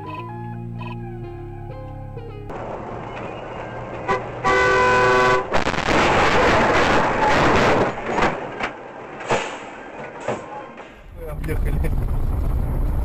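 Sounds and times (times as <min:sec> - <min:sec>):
road noise: 0:00.7 - 0:13.0
car horn honking: 0:04.0 - 0:05.6.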